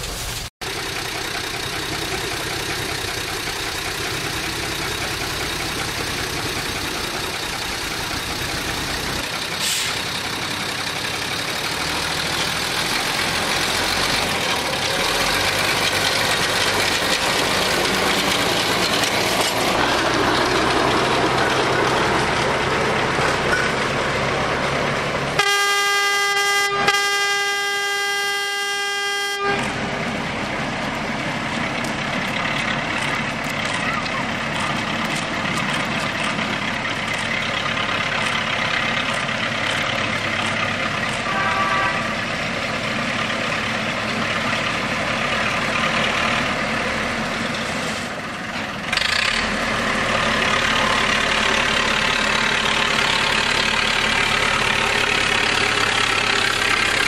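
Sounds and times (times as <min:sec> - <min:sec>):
locomotive engines and wheels rumbling: 0:00.0 - 0:57.0
train horn: 0:25.4 - 0:29.8, 0:41.2 - 0:42.2.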